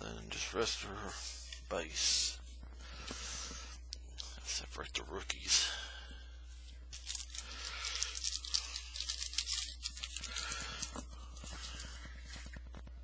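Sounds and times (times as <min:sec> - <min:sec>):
wrapper rustling: 0:06.8 - 0:12.7.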